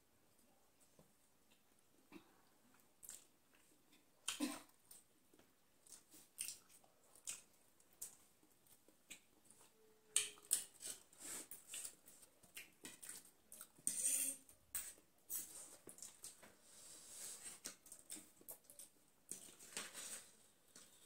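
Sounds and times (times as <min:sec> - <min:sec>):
chewing and biting food: 0:05.8 - 0:09.3.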